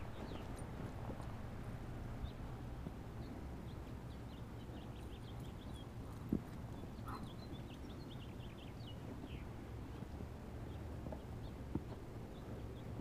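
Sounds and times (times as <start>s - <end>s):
small birds chirping: 0.0s - 1.3s, 2.1s - 13.0s
steady low rumble: 0.0s - 13.0s.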